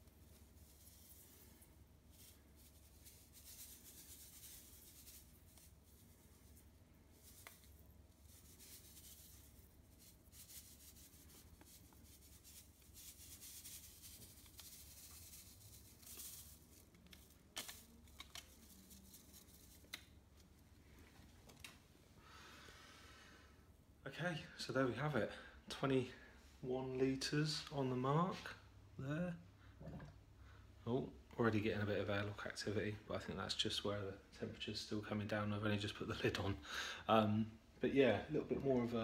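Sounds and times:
sachet rustling and crinkling: 0.1 - 20.5.

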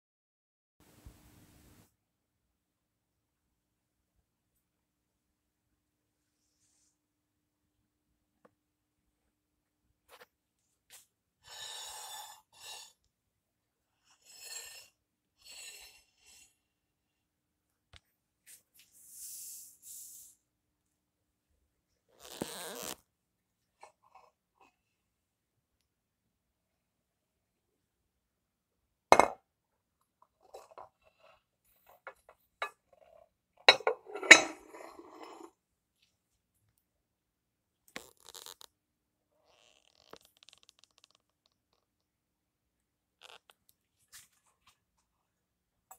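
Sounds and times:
ceramic dish clunking on stone: 29.2 - 29.4.

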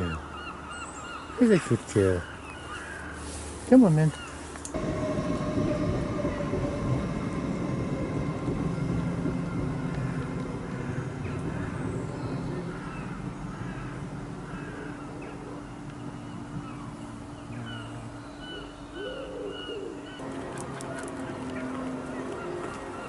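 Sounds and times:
train rumbling with a hum: 3.0 - 23.0.

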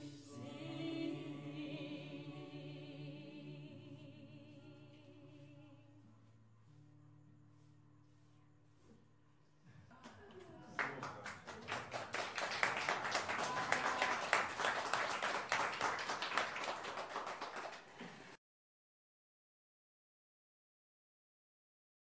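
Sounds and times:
audience applause: 9.9 - 18.4.

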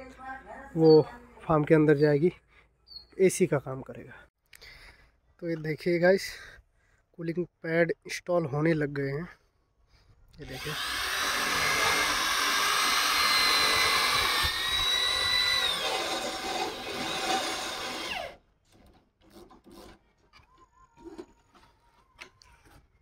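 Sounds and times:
cordless drill whining: 10.4 - 18.4.

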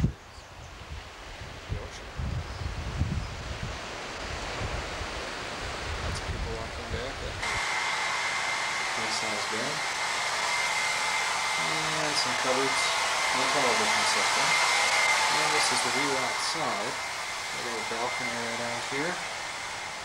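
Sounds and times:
air conditioner rushing air: 0.8 - 20.0
high whine: 4.2 - 20.0.

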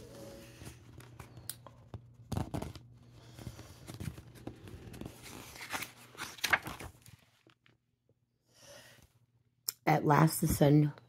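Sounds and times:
paper pages rustling: 0.0 - 7.8.

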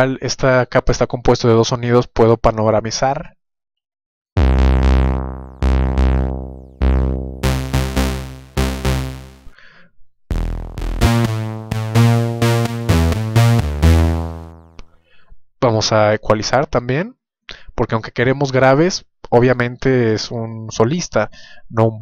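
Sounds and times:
distorted synth riff: 4.4 - 9.5, 10.3 - 14.8.

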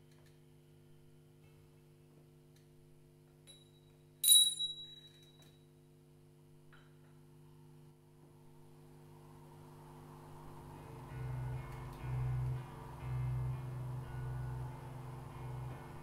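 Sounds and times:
small bell struck: 3.4 - 5.6
guitar strings droning: 9.0 - 16.0.

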